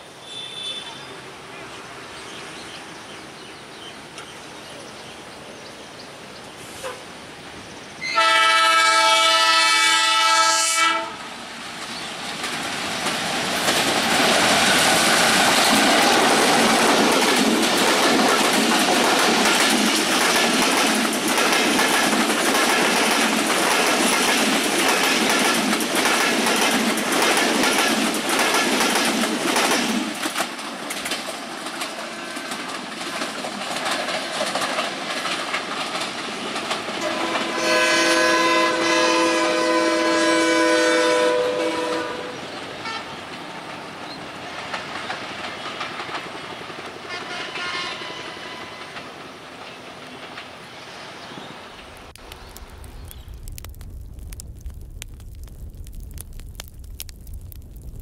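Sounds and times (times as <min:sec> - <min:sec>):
distant train running: 0:00.0 - 0:52.7
locomotive air horn chord: 0:08.0 - 0:11.2, 0:37.0 - 0:43.1, 0:47.1 - 0:48.8
train wheels clattering over rail joints: 0:12.3 - 0:37.6, 0:44.5 - 0:47.2.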